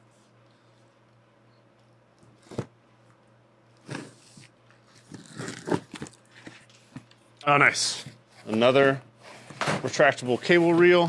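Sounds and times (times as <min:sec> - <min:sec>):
cardboard and tape tearing: 0:04.9 - 0:06.2.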